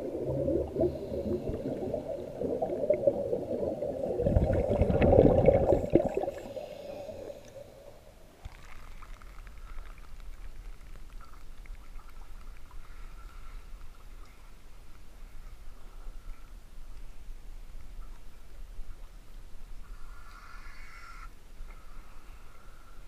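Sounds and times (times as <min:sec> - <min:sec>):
exhaled bubbles gurgling underwater: 0:00.0 - 0:07.6
faint steady whine: 0:00.0 - 0:23.0.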